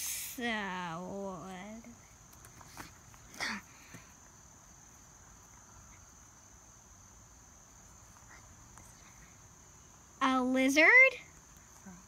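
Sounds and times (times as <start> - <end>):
faint high-pitched whine: 0.0 - 12.0.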